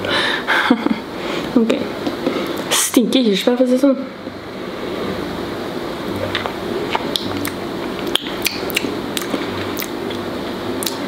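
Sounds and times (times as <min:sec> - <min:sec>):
steady room hiss: 0:00.0 - 0:11.0
wet mouth clicks and lip smacks: 0:06.3 - 0:10.0, 0:10.8 - 0:11.0.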